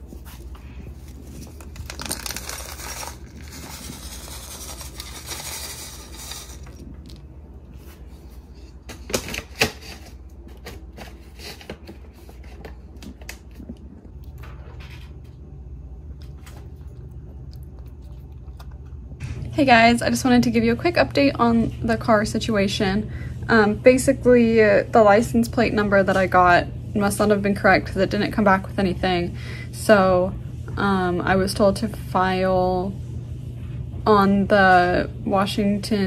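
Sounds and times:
cat crunching kibble: 16.2s - 19.2s.

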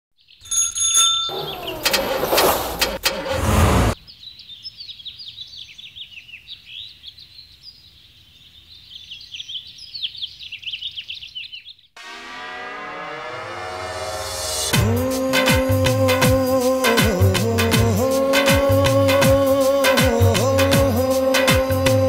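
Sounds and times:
small birds chirping: 1.3s - 1.9s, 4.0s - 12.0s
loud vehicle sound: 1.3s - 4.0s
music: 12.0s - 22.0s.

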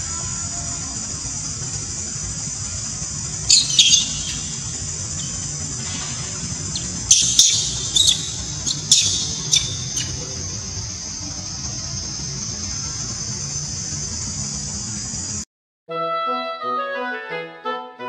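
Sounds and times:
insects humming: 0.0s - 15.4s
monkey screaming shrill squeals: 3.5s - 5.4s, 6.7s - 10.2s.

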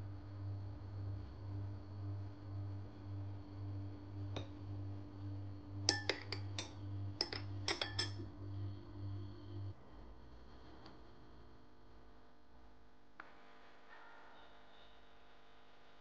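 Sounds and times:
low steady hum: 0.0s - 16.0s
glass straw clinking on glass: 5.9s - 8.2s.

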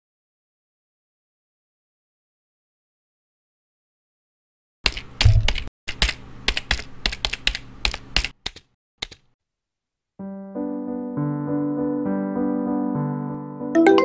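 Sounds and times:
keyboard key clicks: 4.9s - 9.3s
soft electric piano tune: 10.2s - 14.0s.

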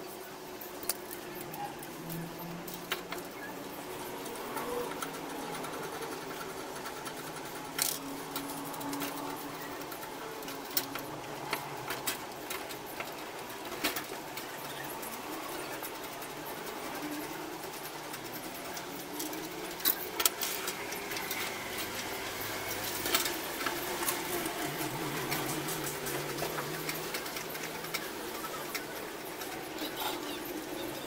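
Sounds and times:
clicks and taps on metal rods: 0.1s - 31.0s.

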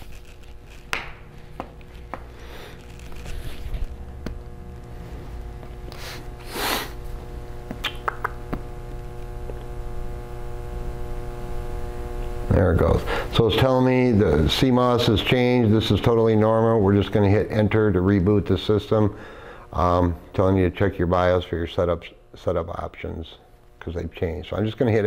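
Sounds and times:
handling rustle: 0.0s - 4.0s
low hum with high tones: 0.0s - 25.0s.

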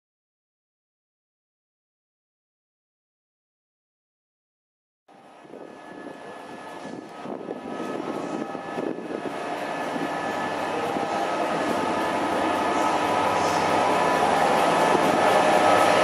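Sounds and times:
diesel locomotive engine drone: 5.1s - 16.0s.

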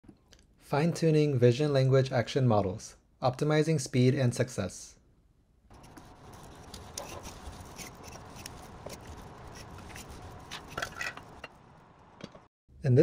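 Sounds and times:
gripper clicks and rustles: 5.7s - 11.5s.

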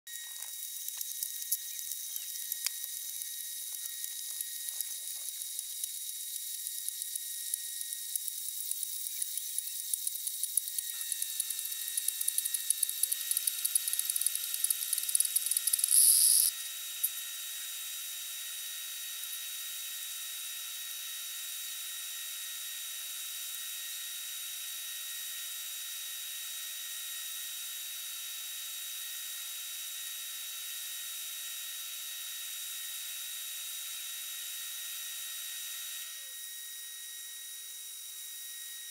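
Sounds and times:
thin steady hum: 0.1s - 19.7s
tea maker heater sputtering and hissing: 0.1s - 38.9s.

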